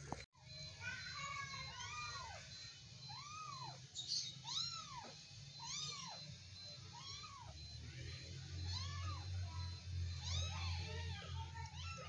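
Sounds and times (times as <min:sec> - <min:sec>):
kitten meowing: 0:04.4 - 0:06.2, 0:06.9 - 0:07.5, 0:10.2 - 0:12.0.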